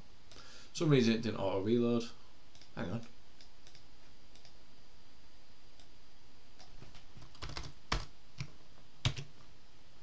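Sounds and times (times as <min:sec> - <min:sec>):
computer keyboard keystrokes: 0:06.6 - 0:09.3.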